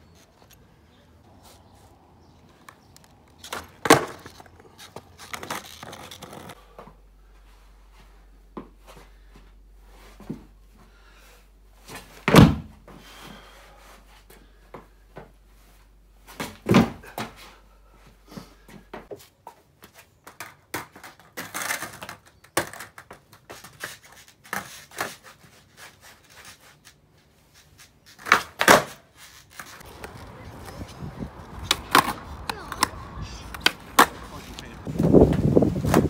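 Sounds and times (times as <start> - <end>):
skateboard thuds: 3.4 - 4.4, 16.3 - 17.4, 29.9 - 34.5
skateboard clacks: 29.8 - 34.7.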